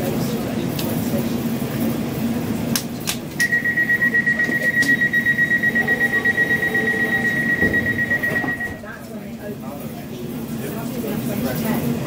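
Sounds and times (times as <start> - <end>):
low train hum: 0.0 - 12.0
rapid high-pitched beeping: 3.5 - 8.8.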